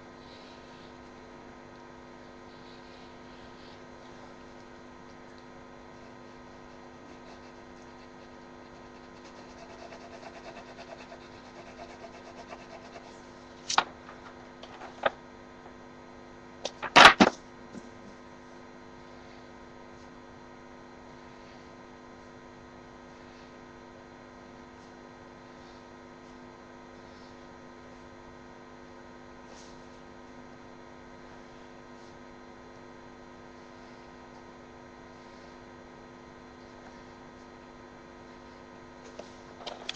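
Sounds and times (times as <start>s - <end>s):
electrical hum: 0.0s - 39.9s
pencil scratching on paper: 6.0s - 13.3s.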